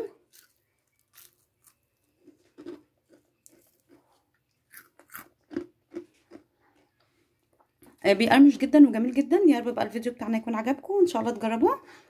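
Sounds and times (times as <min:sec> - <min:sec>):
crisp chewing crunches: 0:00.2 - 0:06.9.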